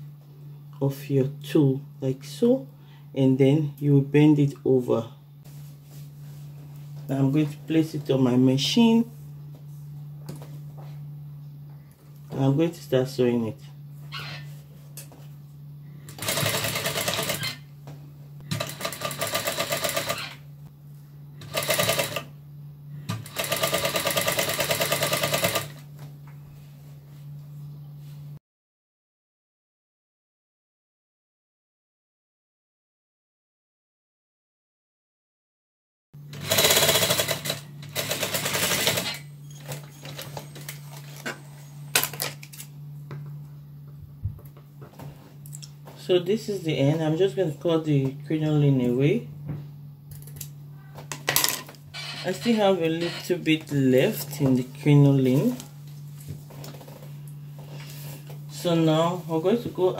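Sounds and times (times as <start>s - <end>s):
sewing machine motor humming: 16.1s - 17.7s, 18.5s - 20.4s, 21.4s - 22.3s, 23.1s - 25.9s, 36.3s - 41.2s, 51.9s - 53.3s
sewing machine stitching rattle: 16.2s - 17.6s, 21.4s - 22.2s, 23.3s - 25.8s.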